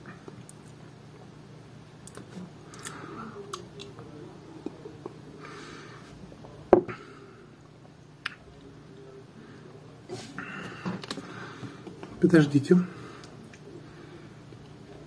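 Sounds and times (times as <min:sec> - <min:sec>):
soft breath: 0:05.4 - 0:06.2, 0:09.4 - 0:12.0, 0:12.8 - 0:14.6.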